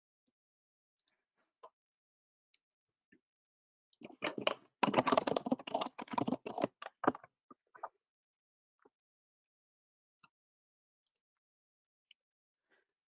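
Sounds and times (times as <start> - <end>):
typing on computer keyboard: 4.1 - 7.2.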